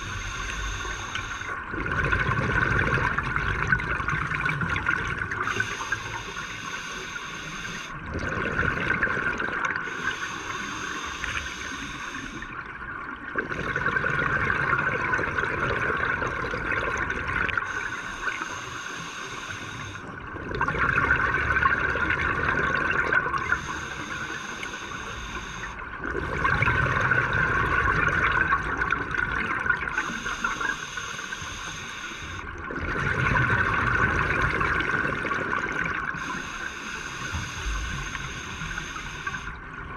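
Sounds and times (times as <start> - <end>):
scuba regulator breathing underwater: 0.0 - 1.6, 5.4 - 12.6, 17.6 - 20.2, 22.4 - 27.9, 29.9 - 39.6
exhaled bubbles rushing: 0.0 - 5.7, 8.0 - 9.9, 12.4 - 17.9, 20.1 - 23.7, 25.8 - 30.8, 32.4 - 36.3.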